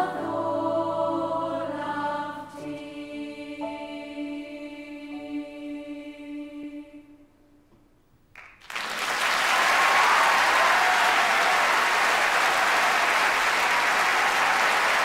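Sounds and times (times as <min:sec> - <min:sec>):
children's choir singing: 0:00.0 - 0:07.2
audience applause: 0:08.4 - 0:15.0.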